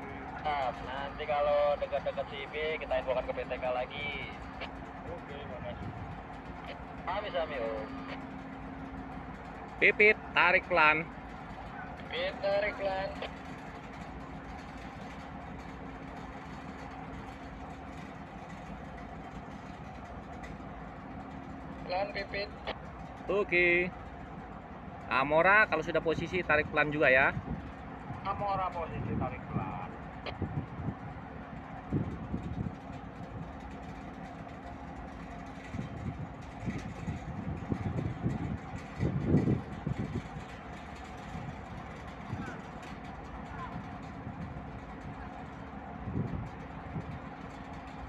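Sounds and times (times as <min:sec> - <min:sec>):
ship engine drone: 0:00.0 - 0:48.0
wind buffeting microphone: 0:04.7 - 0:06.7, 0:26.6 - 0:48.0.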